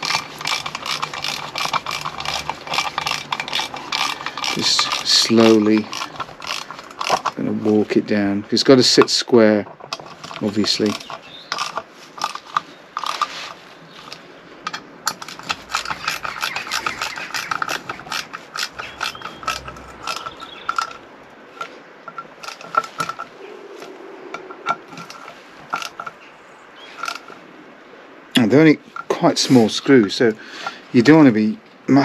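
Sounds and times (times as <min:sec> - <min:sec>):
hand ratchet clicking: 0:00.0 - 0:07.5, 0:09.9 - 0:13.4, 0:14.0 - 0:21.0.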